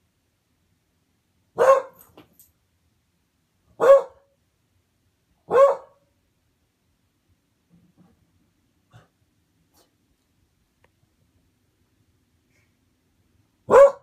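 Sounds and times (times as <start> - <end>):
dog barking: 1.6 - 2.1, 3.8 - 4.3, 5.5 - 6.0, 13.7 - 14.0.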